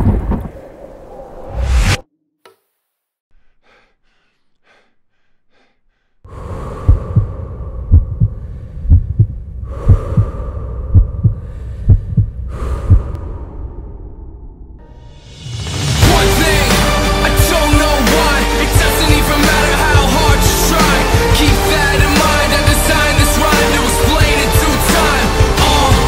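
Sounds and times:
slow heavy breathing: 3.3s - 14.0s.

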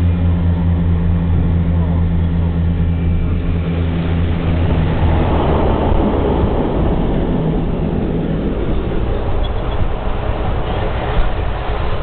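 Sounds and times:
seaplane engines droning: 0.0s - 12.0s
rush of water spray: 3.6s - 12.0s.

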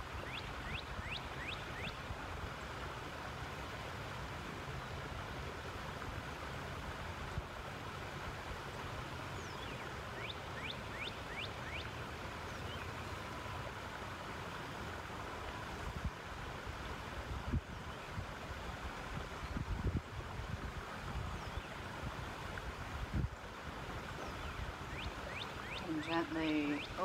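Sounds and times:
creek flowing: 0.0s - 27.0s
wind on microphone: 15.8s - 24.8s
bird chirping: 24.2s - 27.0s.

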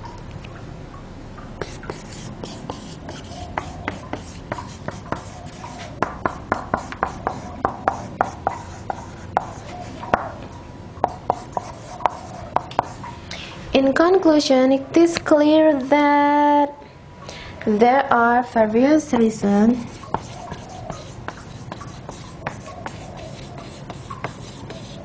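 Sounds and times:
marker writing on whiteboard: 1.6s - 10.3s, 11.0s - 13.0s, 19.2s - 25.0s.

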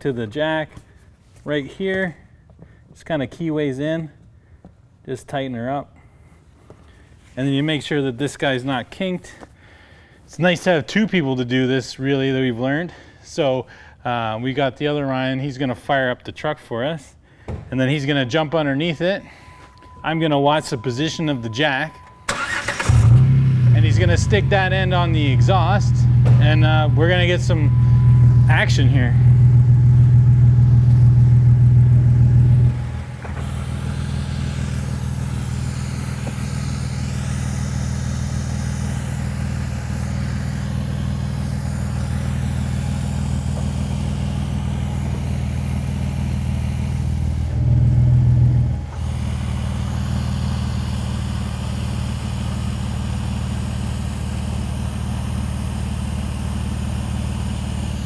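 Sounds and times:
car engine idling: 17.5s - 58.0s
exhaust hissing into jack: 22.3s - 54.3s.

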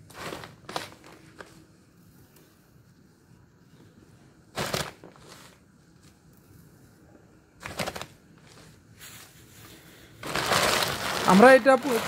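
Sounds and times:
rice bran rustling scrapes: 7.6s - 12.0s.

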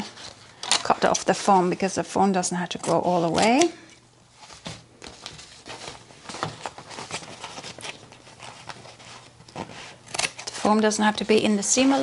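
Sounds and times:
foam material rustling: 3.0s - 12.0s.

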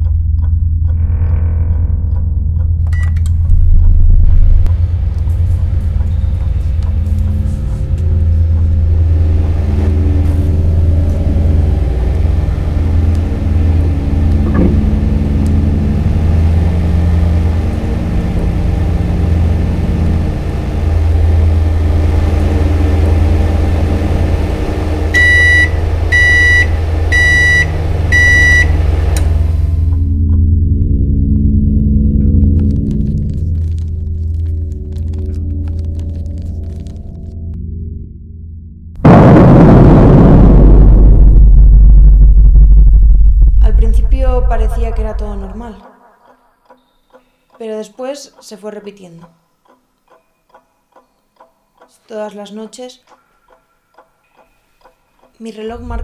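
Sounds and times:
microwave timer beeps: 2.9s - 3.3s, 25.1s - 28.8s
microwave oven humming: 4.6s - 31.2s.

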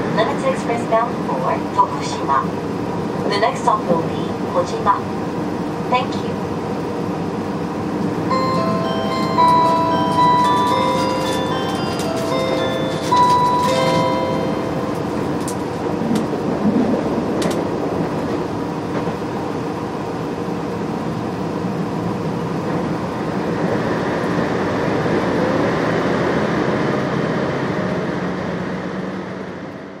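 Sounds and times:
wheel and rail rumble: 0.0s - 29.9s.

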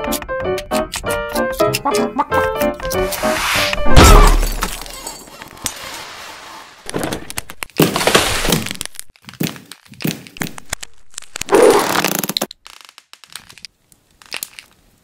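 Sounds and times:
glass shattering: 3.9s - 6.0s
crackles rustles and knocks: 6.8s - 15.0s.

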